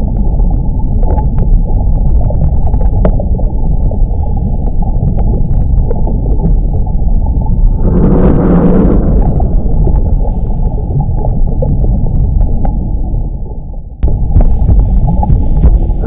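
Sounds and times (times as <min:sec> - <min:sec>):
small underwater clicks: 0:00.0 - 0:13.3
underwater rumble of moving water: 0:00.0 - 0:16.0.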